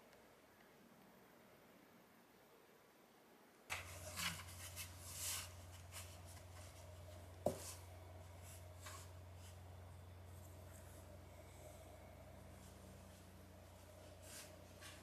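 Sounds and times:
kitten scraping cardboard: 3.7s - 9.6s, 13.9s - 15.0s.

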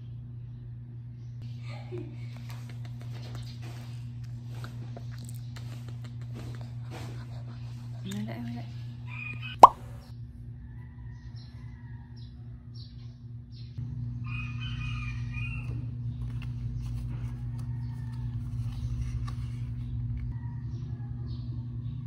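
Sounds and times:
rooster crowing: 9.1s - 9.6s, 10.5s - 12.7s, 14.2s - 16.0s, 20.4s - 21.5s.

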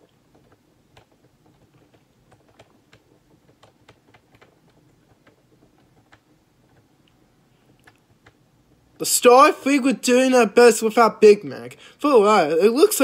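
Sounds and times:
typing on computer keyboard: 0.0s - 8.4s
low room hum: 0.0s - 13.0s.

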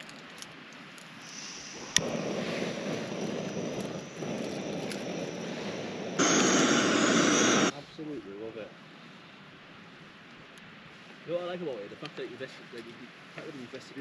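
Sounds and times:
gas burner rushing: 1.2s - 7.7s
gas hissing: 1.2s - 7.7s.

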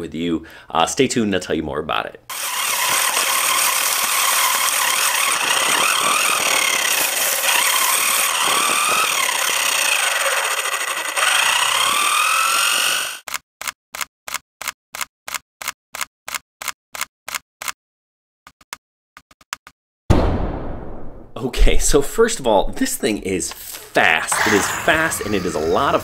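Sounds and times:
rc car motor whining: 2.3s - 13.2s, 23.7s - 26.0s
tyres and wind hissing: 23.0s - 26.0s.

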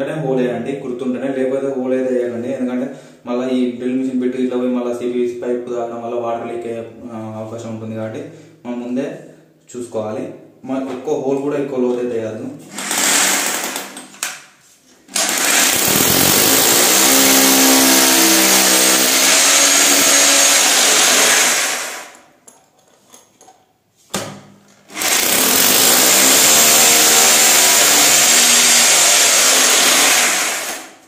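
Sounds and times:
hammer drill boring into tile: 12.7s - 14.0s, 15.1s - 22.2s, 24.9s - 31.0s.

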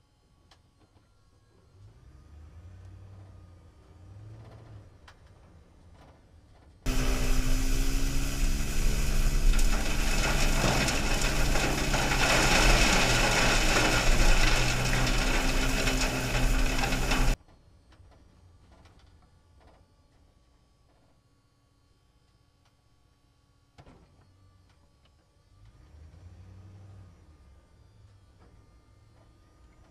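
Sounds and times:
steady motor hum: 6.9s - 17.4s
street sweeper brushes scrubbing: 6.9s - 17.4s.

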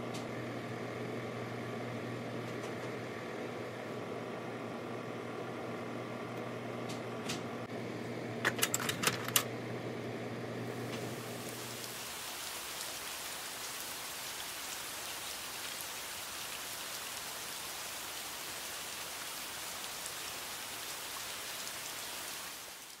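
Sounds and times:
rain hissing: 10.5s - 23.0s.

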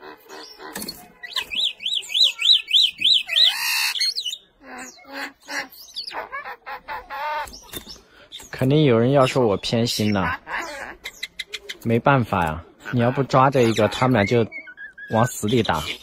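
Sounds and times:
birds warbling whistle: 0.0s - 6.4s, 12.8s - 16.0s
bird clicks and calls: 0.3s - 4.4s, 7.4s - 9.4s, 11.0s - 12.5s.

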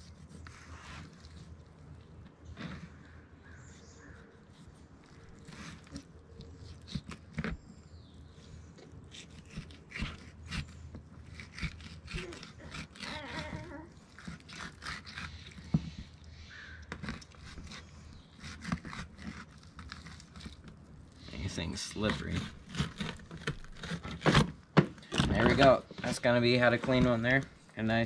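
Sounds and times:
knife scraping fish skin: 0.0s - 1.8s, 4.3s - 7.6s, 9.0s - 16.2s, 16.9s - 21.3s, 21.9s - 26.2s.

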